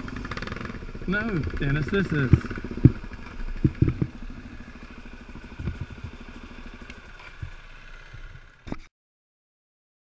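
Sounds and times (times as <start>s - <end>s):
dirt bike engine idling: 0.0s - 8.8s
knocks: 2.3s - 4.2s.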